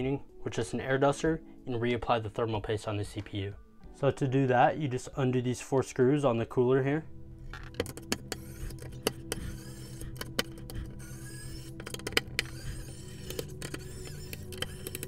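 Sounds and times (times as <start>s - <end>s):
electric screwdriver humming: 7.8s - 15.0s.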